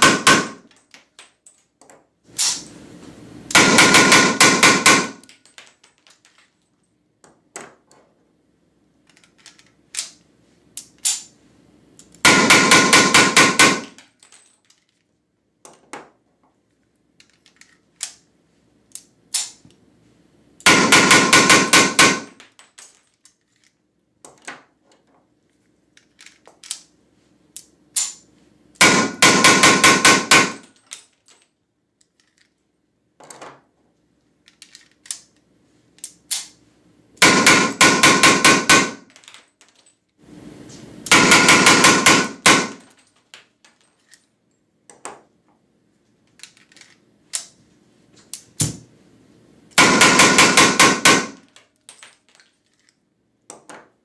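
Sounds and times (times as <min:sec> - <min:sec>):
blank pistol shots: 0:00.0 - 0:00.6, 0:03.6 - 0:05.2, 0:20.7 - 0:22.3, 0:28.8 - 0:30.6, 0:41.1 - 0:42.8, 0:49.8 - 0:51.4.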